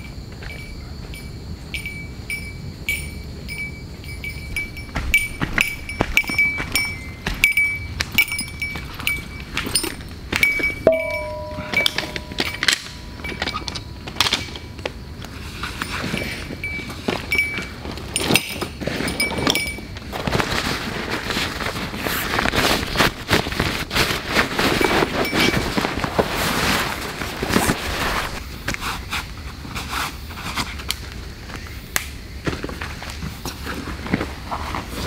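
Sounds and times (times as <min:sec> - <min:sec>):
buckles and gear clicking: 0:02.9 - 0:14.6, 0:15.2 - 0:20.0
fabric rustling: 0:20.1 - 0:28.4.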